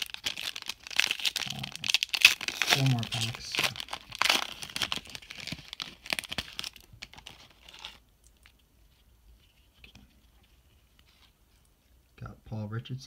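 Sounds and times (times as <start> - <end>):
foil wrapper tearing and crinkling: 0.0 - 8.0.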